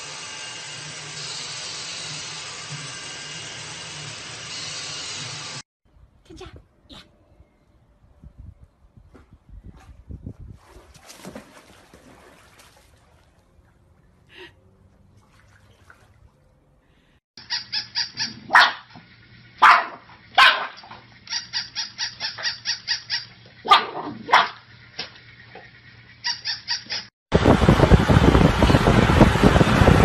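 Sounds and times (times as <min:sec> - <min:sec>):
toy motor humming: 0:00.0 - 0:05.6
toy puppy yapping: 0:17.4 - 0:19.0, 0:19.6 - 0:24.6, 0:26.2 - 0:27.1
louder fuller barks: 0:19.6 - 0:20.9.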